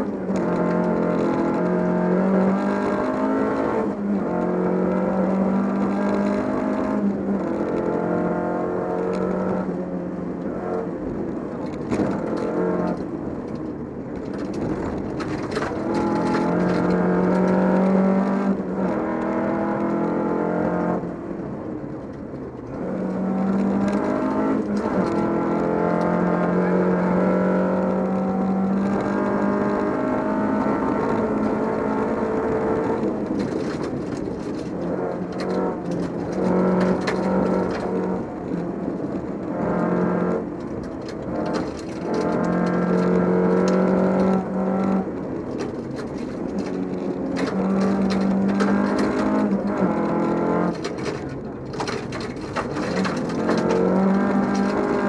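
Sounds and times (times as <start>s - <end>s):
rally car engine at high revs: 0.0s - 21.8s, 22.5s - 55.0s
gravel clattering under car: 30.8s - 55.0s.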